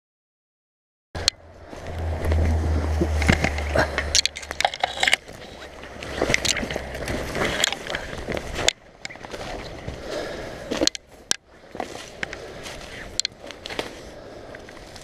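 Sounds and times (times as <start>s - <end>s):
low rumble: 1.4s - 8.6s
undergrowth rustling and snapping: 1.7s - 15.0s.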